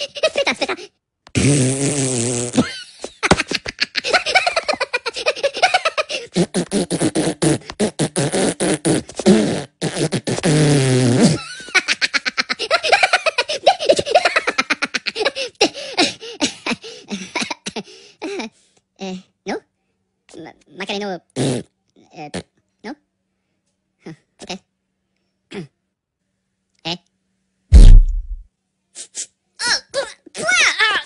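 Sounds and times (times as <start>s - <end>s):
sputtering fart noises: 1.3s - 2.8s, 6.2s - 11.5s, 21.4s - 21.7s, 27.7s - 28.4s.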